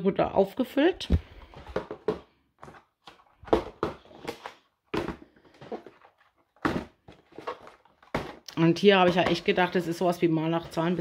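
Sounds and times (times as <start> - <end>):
packaging taps and rustles: 1.4 - 9.8.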